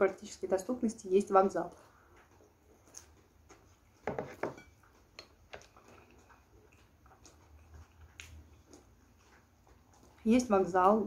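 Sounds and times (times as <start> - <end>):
chewing: 1.7 - 4.0, 4.6 - 11.0.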